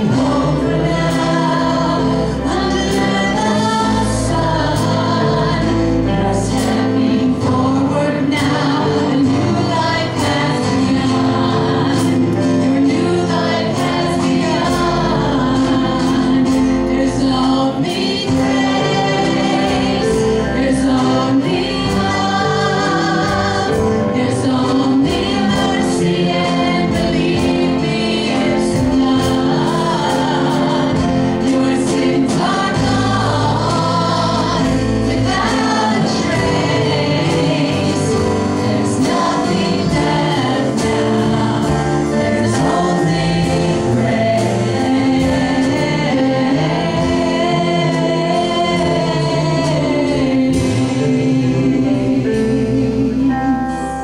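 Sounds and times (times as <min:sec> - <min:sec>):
group of singers: 0:00.0 - 0:54.0
worship band playing: 0:00.0 - 0:54.0.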